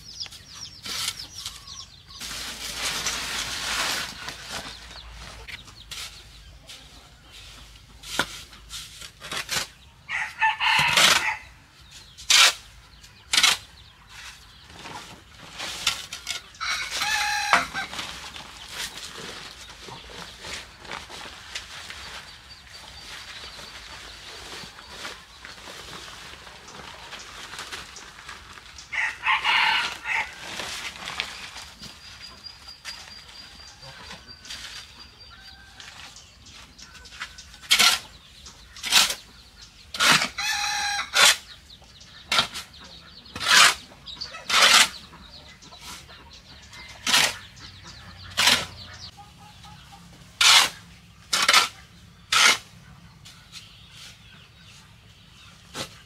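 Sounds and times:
hoe scraping sand on concrete: 0.0 - 26.3, 29.0 - 49.1, 50.3 - 54.4
rooster crowing: 28.9 - 30.4.

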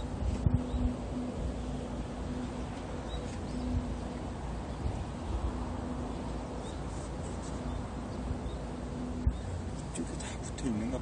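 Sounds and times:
low rumble and hiss: 0.0 - 11.0.

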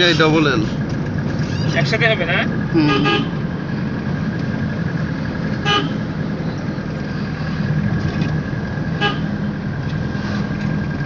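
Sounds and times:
vehicle running with road noise: 0.0 - 11.0
car horn toot: 2.8 - 3.4, 5.6 - 6.1, 9.0 - 9.4.

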